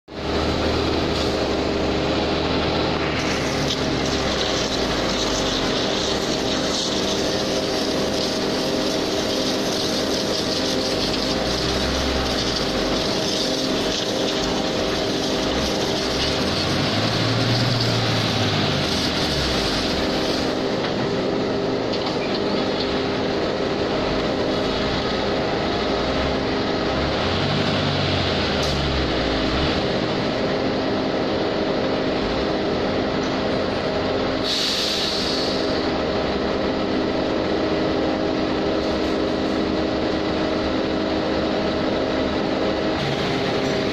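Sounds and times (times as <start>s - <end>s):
concrete mixer truck engine drone: 0.1s - 43.9s
hiss: 2.7s - 20.8s, 34.4s - 35.9s.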